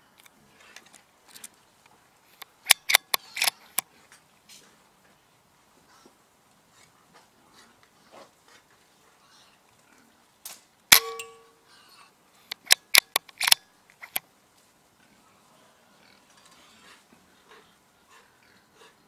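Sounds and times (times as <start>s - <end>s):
sharp clicks and knocks: 2.4s - 3.8s, 12.5s - 14.2s
rifle gunshot: 10.9s - 11.3s
metallic ring: 10.9s - 11.6s.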